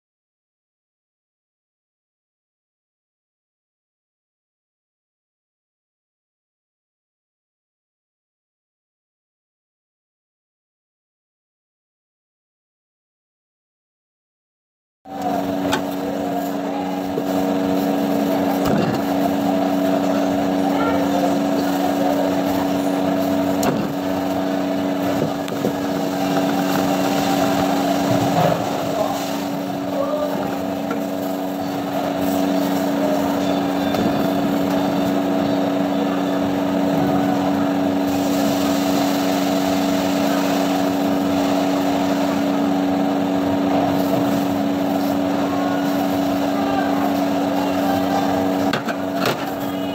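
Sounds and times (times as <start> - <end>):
motor droning: 15.2 - 49.9.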